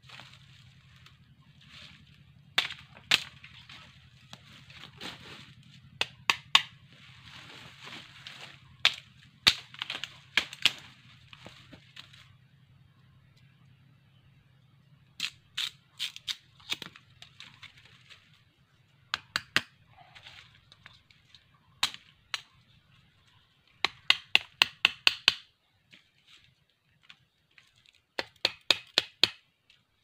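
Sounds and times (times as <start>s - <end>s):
bamboo stakes knocking: 2.6s - 4.4s, 6.0s - 6.8s, 8.4s - 12.1s, 19.1s - 19.8s, 20.7s - 22.7s, 23.7s - 25.5s, 28.1s - 29.6s.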